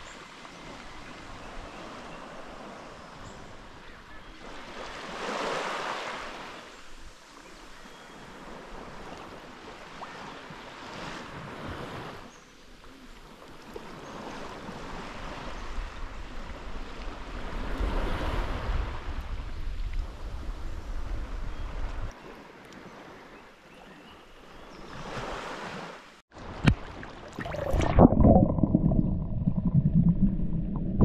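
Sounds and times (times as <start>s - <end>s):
wind rumbling on microphone: 14.3s - 22.2s
sea waves washing in: 25.0s - 31.0s.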